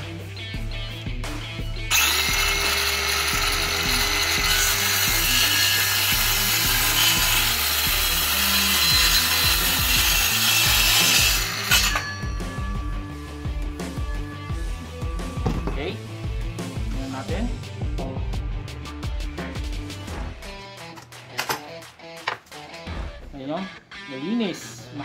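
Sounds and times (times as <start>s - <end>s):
circular saw cutting wood: 1.9s - 12.9s.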